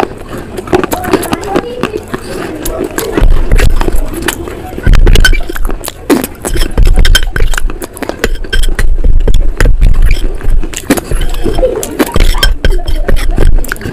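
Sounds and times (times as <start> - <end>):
wet mouth smacks and clicks: 2.6 - 4.4, 5.0 - 8.9, 9.8 - 12.4
spoon scraping paste in bowl: 5.0 - 13.9.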